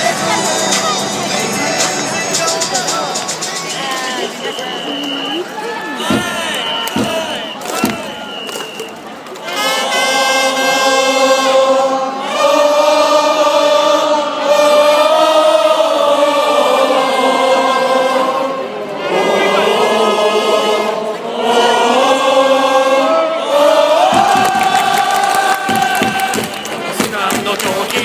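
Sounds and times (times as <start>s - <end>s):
crowd singing a cheer song: 0.0s - 28.0s
trumpets playing: 9.4s - 13.2s.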